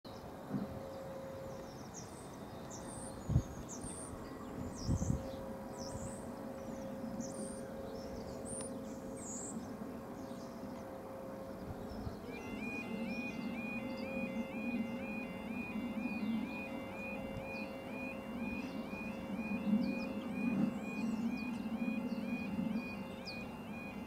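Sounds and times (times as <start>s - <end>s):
small birds chirping: 0.1s - 24.0s
two-tone electronic warning alarm: 10.9s - 24.0s.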